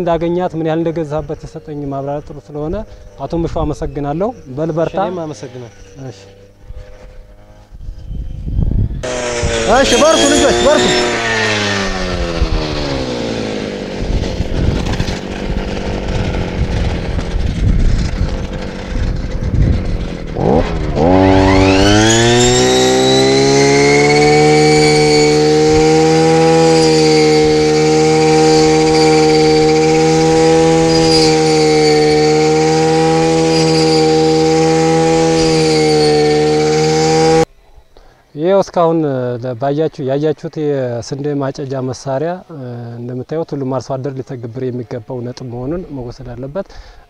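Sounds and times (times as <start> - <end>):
small engine revving and idling: 0.4 - 37.5.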